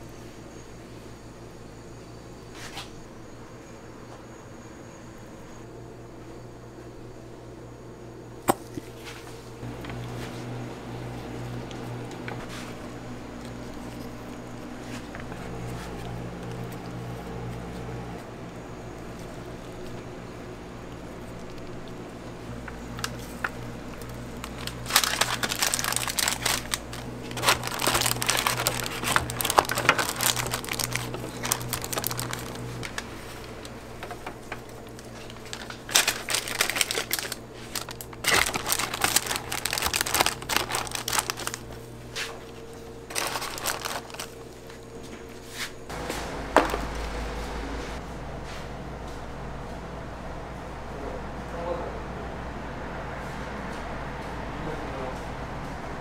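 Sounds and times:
paper wrappers crinkling: 0:09.6 - 0:18.2, 0:18.9 - 0:45.4
low hum: 0:09.6 - 0:45.3, 0:45.9 - 0:56.0.

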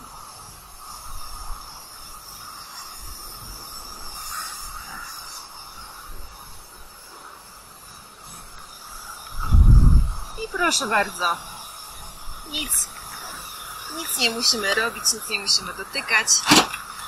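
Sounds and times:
outdoor background hiss: 0:00.0 - 0:17.0
wind rumble on microphone: 0:09.3 - 0:10.7.

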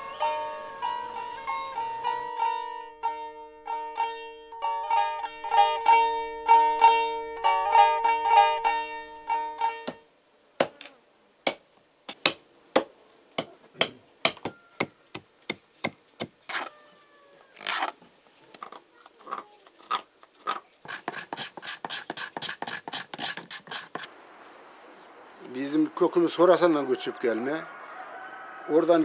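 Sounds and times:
plucked-string folk tune: 0:00.0 - 0:10.2
knife carving wood: 0:11.5 - 0:16.7, 0:17.6 - 0:24.1.

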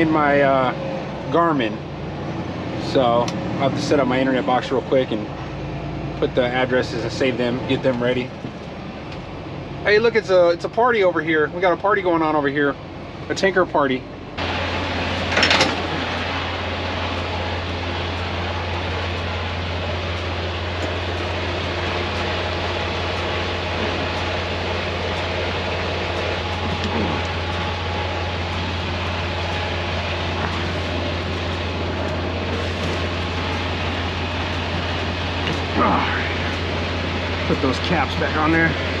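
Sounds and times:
diesel truck engine idling: 0:00.0 - 0:39.0
constant hiss: 0:14.4 - 0:39.0.

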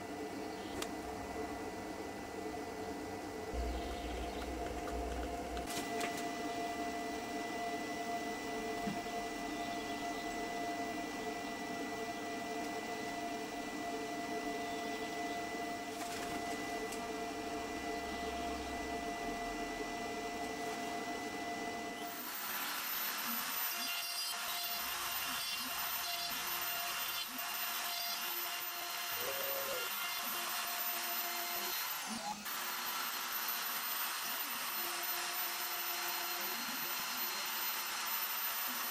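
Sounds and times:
steady hum with tones: 0:00.0 - 0:38.9
router spindle cutting: 0:21.4 - 0:38.9.

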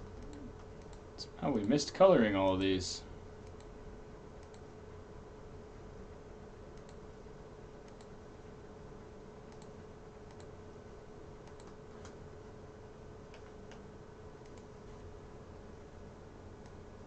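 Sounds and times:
steady low hum: 0:00.0 - 0:17.0
mouse and keyboard clicks: 0:11.4 - 0:12.2.

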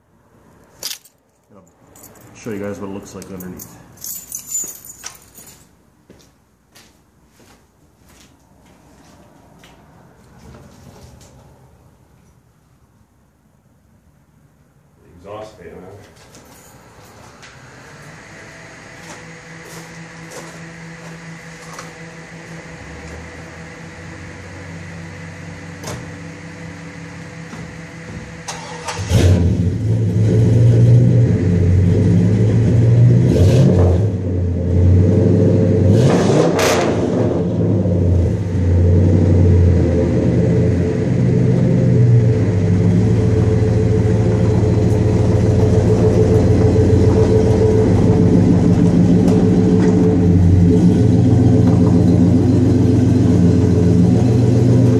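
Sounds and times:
car engine revving and idling: 0:17.2 - 0:54.9.

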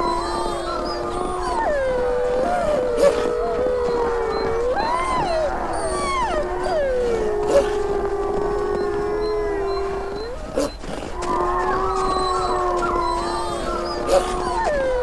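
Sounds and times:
wolves howling: 0:00.0 - 0:15.0.

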